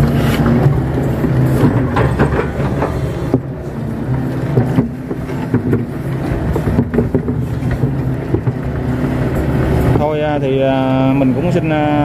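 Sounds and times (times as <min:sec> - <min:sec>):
diesel engine running: 0:00.0 - 0:12.0
excavator bucket knocking: 0:00.4 - 0:09.1.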